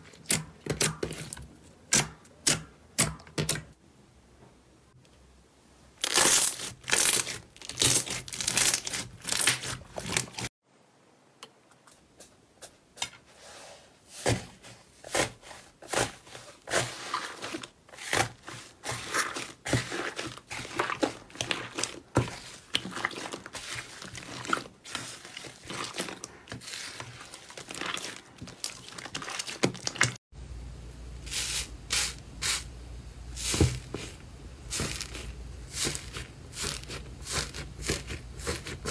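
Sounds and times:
hands squishing slime: 15.1 - 30.2, 33.4 - 38.9.

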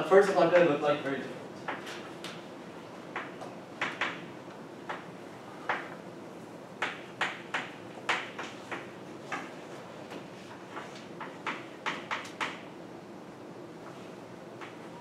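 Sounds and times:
chalk tapping and scraping on blackboard: 6.8 - 12.6.

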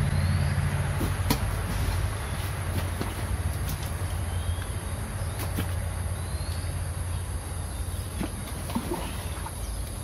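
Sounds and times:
hoe scraping wet mud: 0.9 - 4.1, 8.0 - 9.8.

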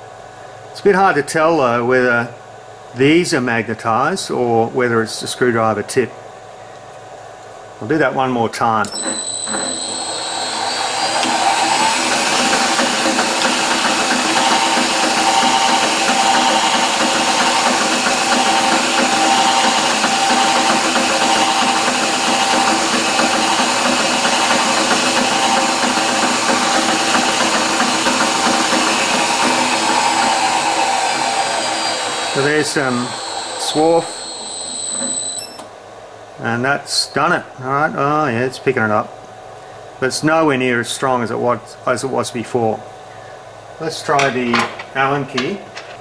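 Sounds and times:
drill press motor whine: 8.8 - 35.7.

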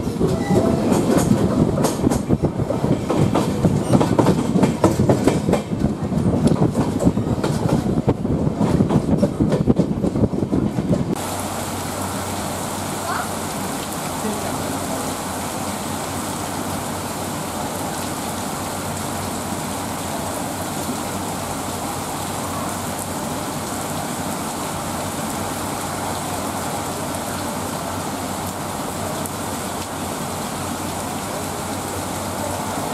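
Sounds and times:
heavy rain on pavement and roofs: 10.8 - 32.9.

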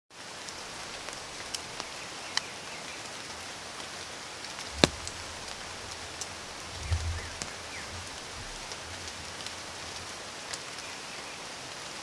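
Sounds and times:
rain on foliage: 0.1 - 12.0
drops tapping on leaves: 4.7 - 6.0.

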